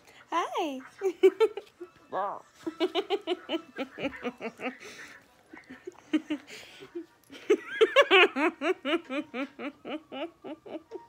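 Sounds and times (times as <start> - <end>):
woman laughing: 2.7 - 5.0, 5.6 - 11.0.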